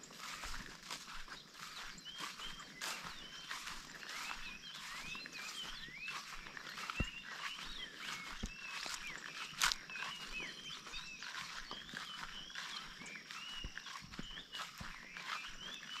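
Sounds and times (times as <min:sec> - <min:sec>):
chorus of chirping calls: 0:00.0 - 0:16.0
soft footsteps: 0:00.0 - 0:16.0.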